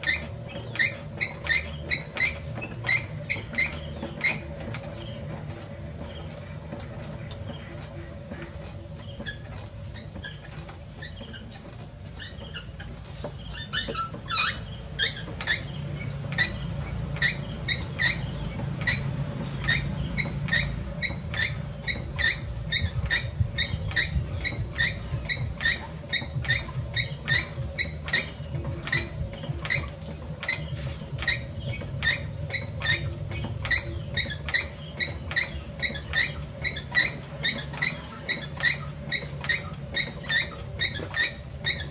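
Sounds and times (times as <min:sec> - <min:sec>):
potter's wheel rumbling: 0:00.0 - 0:41.9.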